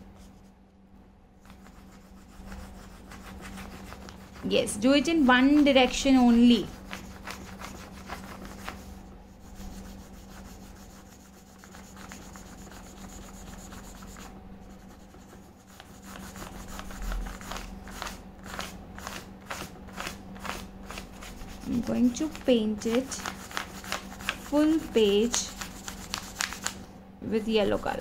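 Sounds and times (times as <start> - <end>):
crayon scratching on paper: 1.4 - 26.7.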